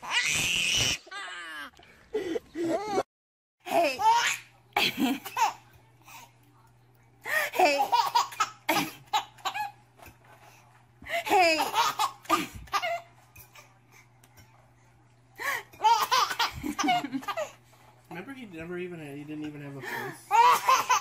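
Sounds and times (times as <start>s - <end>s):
baby laughing: 3.7s - 5.6s, 7.4s - 9.8s, 11.2s - 13.1s, 15.8s - 17.6s, 20.3s - 21.0s.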